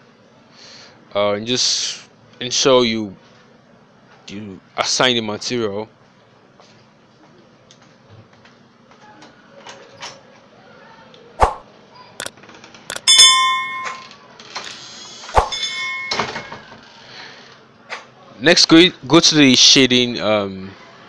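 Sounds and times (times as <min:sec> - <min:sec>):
sharp clicks: 0:12.9 - 0:13.1
bell ding: 0:12.9 - 0:14.2, 0:15.5 - 0:16.6.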